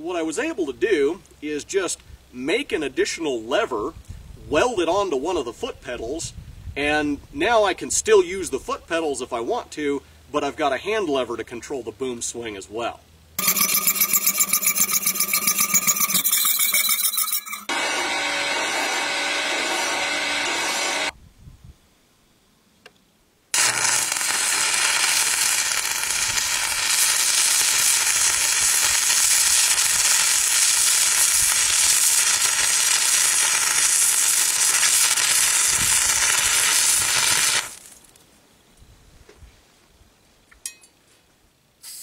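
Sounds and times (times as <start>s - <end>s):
hand file on spinning metal: 13.4s - 21.1s
metal lathe running: 13.4s - 21.1s
welding arc crackling and hissing: 13.4s - 21.1s, 23.6s - 38.1s.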